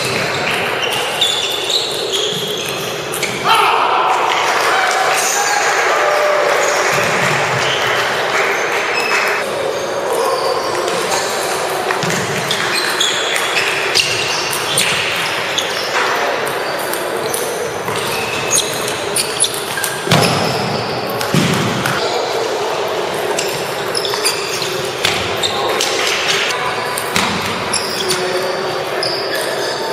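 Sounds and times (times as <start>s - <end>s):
background chatter: 6.0s - 29.9s.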